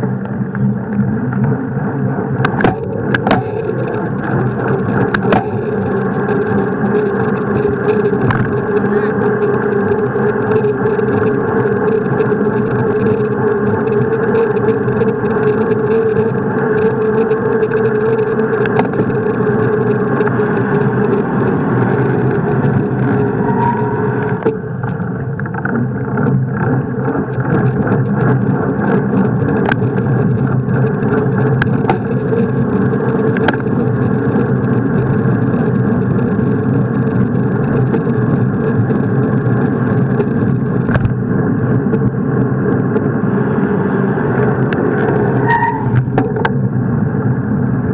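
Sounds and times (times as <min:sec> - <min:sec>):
bicycle road noise on asphalt: 0:00.0 - 0:47.9
small rattles and clicks: 0:00.2 - 0:47.3
wind rushing: 0:19.0 - 0:24.4.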